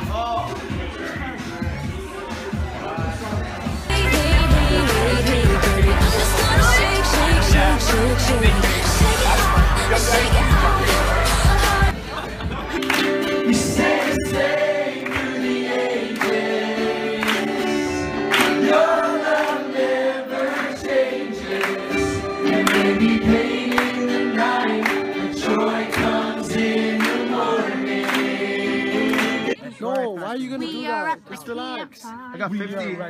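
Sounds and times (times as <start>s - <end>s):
steady beat: 0.1s - 11.9s
choir singing: 3.9s - 12.0s, 13.3s - 29.6s.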